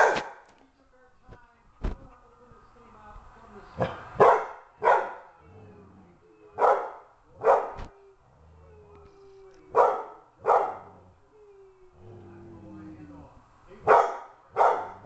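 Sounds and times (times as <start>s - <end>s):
dog barking: 0.0s - 0.5s, 3.8s - 5.3s, 6.6s - 7.8s, 9.7s - 11.0s, 13.8s - 15.0s.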